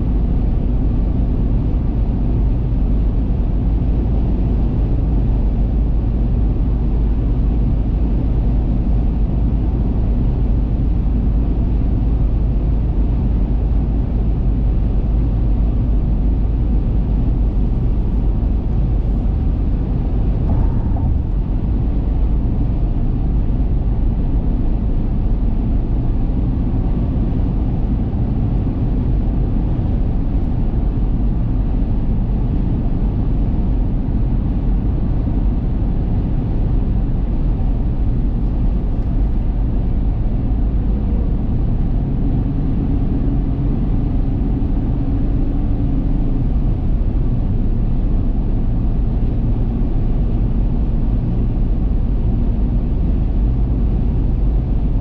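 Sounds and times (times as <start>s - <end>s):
car cruising inside cabin: 0.0s - 55.0s
tyre and road noise: 17.3s - 24.2s.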